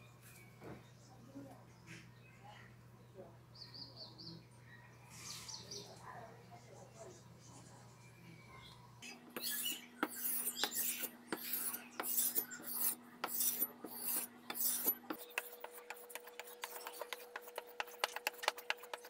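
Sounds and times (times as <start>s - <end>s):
blade scraping on sharpening stone: 9.4s - 19.0s.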